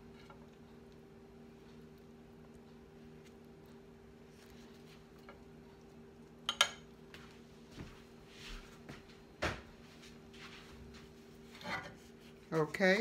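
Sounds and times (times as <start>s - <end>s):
faint steady hum: 0.0s - 13.0s
dishes clinking: 6.5s - 6.9s.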